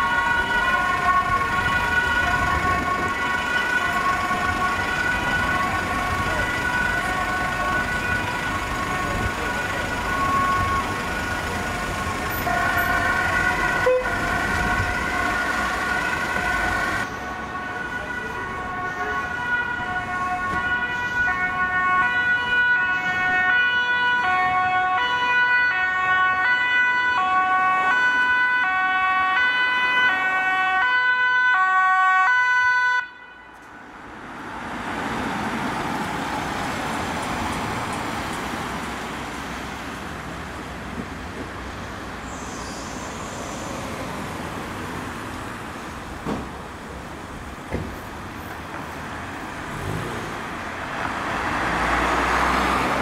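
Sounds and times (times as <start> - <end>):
passing vehicle tyres and engine: 0.0 - 31.2, 33.6 - 53.0
two-tone ambulance siren: 0.0 - 34.2.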